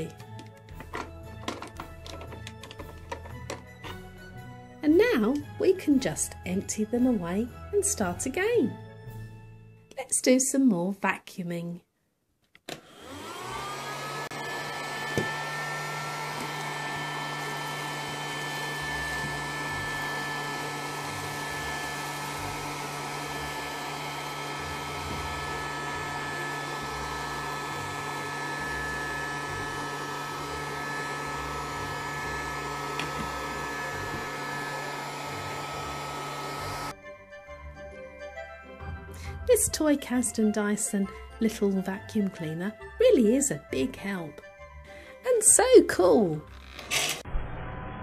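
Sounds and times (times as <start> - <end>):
toy vacuum cleaner motor whine: 12.7 - 37.0.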